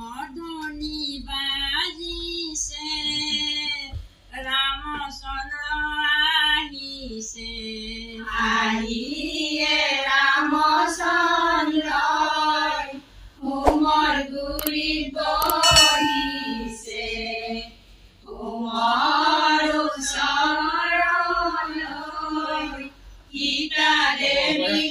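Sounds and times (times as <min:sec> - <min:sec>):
women singing unaccompanied: 0:01.4 - 0:24.9
clicks: 0:15.4 - 0:16.4
bright ding: 0:15.4 - 0:16.9.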